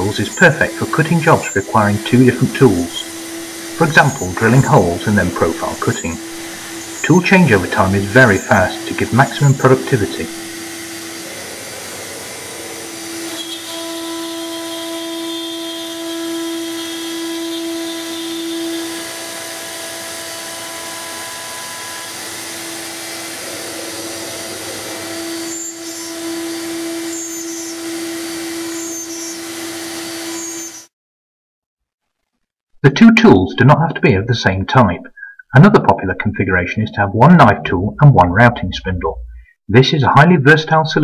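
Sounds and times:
cnc router motor hum: 0:00.0 - 0:30.9
router cutting sheet material: 0:00.0 - 0:30.9.

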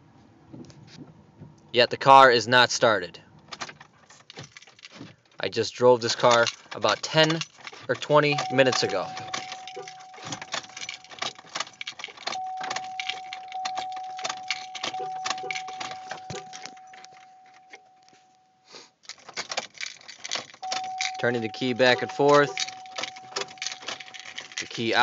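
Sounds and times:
keys jangling: 0:03.5 - 0:05.4, 0:06.0 - 0:18.2, 0:19.0 - 0:25.0
ignition switch clicking: 0:07.9 - 0:18.2, 0:20.6 - 0:24.1
steady high tone: 0:12.3 - 0:18.4, 0:20.6 - 0:23.9.

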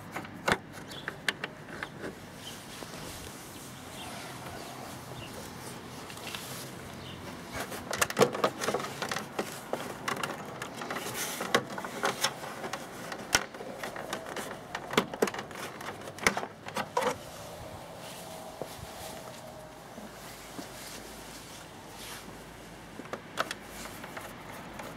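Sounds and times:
plastic parts clicking and knocking: 0:00.0 - 0:02.2, 0:07.5 - 0:17.2, 0:23.0 - 0:24.9.

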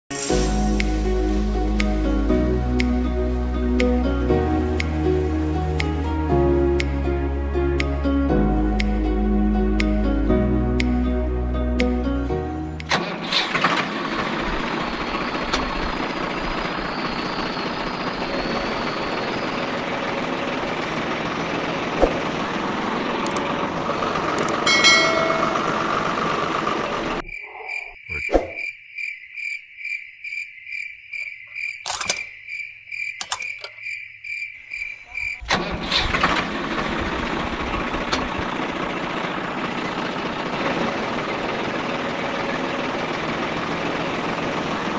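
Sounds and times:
sharp click: 0:12.8 - 0:13.0, 0:23.3 - 0:23.5, 0:24.4 - 0:25.6, 0:31.8 - 0:32.3, 0:33.2 - 0:33.8
insect chirping trill: 0:27.2 - 0:35.5.

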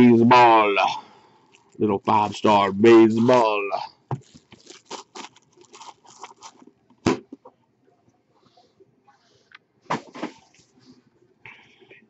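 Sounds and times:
plastic wrapping crinkling: 0:01.5 - 0:01.8, 0:04.1 - 0:06.8.

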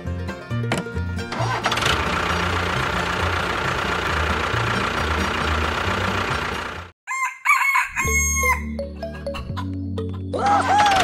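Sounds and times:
dense mechanical noise: 0:01.3 - 0:06.9
rooster crowing: 0:07.1 - 0:08.8.

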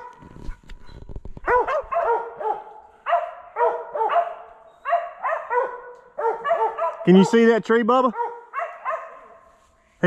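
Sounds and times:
dog barking sharply: 0:01.4 - 0:07.4, 0:08.1 - 0:09.5.

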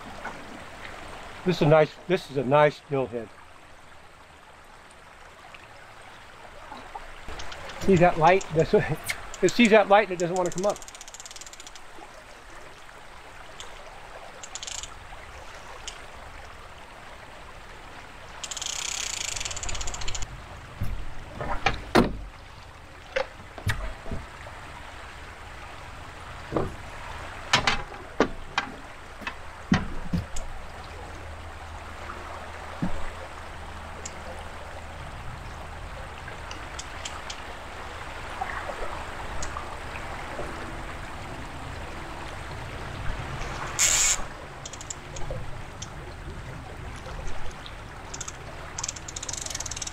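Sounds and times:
river water running around boat: 0:00.0 - 0:49.9
landing net knocking against boat: 0:27.5 - 0:30.4
splashy hiss: 0:43.6 - 0:44.3.

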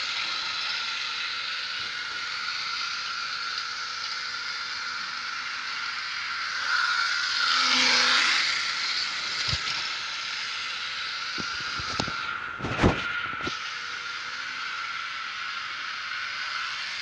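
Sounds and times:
model train motor whine: 0:00.0 - 0:17.0
wheels on rails: 0:00.0 - 0:17.0.

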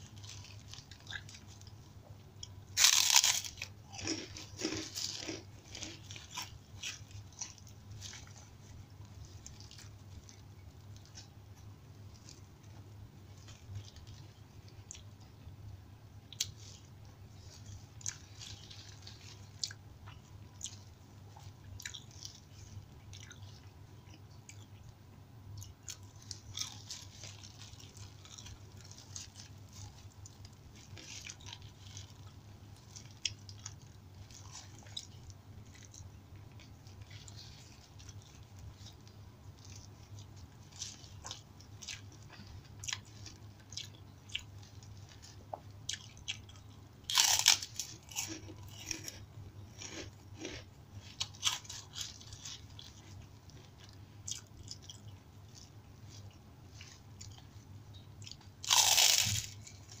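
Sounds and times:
chewing with mouth clicks: 0:00.0 - 0:15.4, 0:16.3 - 0:24.9, 0:25.6 - 1:00.0
loud crunching of cracker: 0:02.4 - 0:08.4, 0:25.6 - 0:45.2, 0:45.9 - 0:55.7, 0:58.2 - 1:00.0.

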